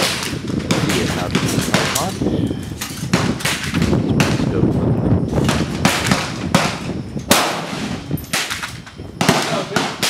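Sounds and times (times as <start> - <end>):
rifle gunshots with echo: 0.0 - 2.1, 3.1 - 4.6, 5.4 - 8.6, 9.2 - 10.0.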